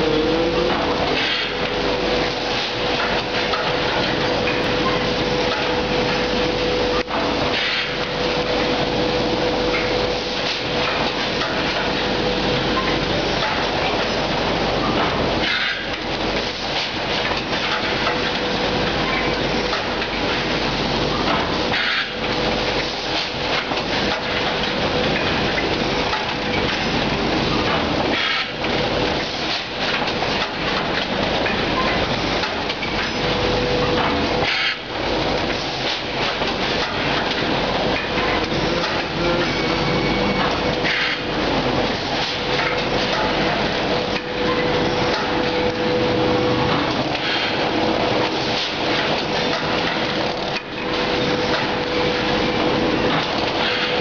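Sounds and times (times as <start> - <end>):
machinery clatter: 0.0 - 54.0.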